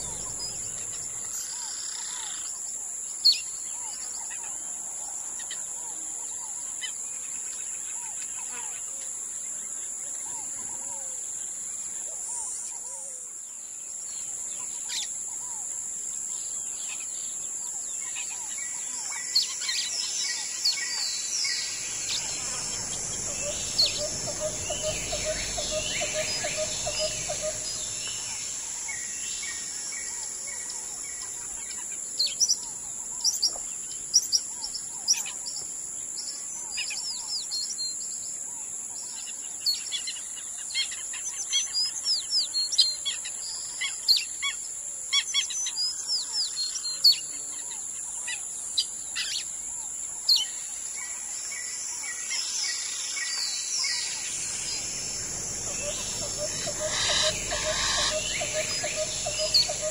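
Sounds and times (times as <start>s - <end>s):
birds chirping and trilling: 0.0s - 2.6s, 16.4s - 38.2s, 50.2s - 59.9s
high insect drone: 0.0s - 59.9s.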